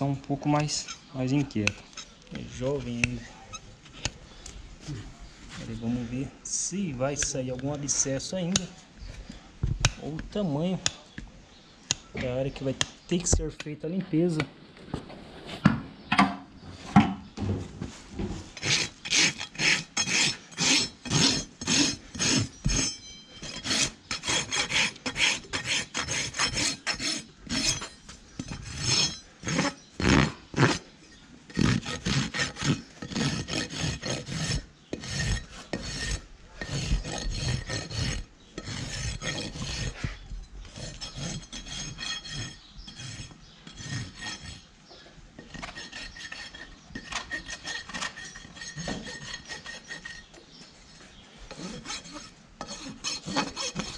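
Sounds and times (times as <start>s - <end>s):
hoof rasp scraping hoof: 0.4s - 4.2s, 16.6s - 53.9s.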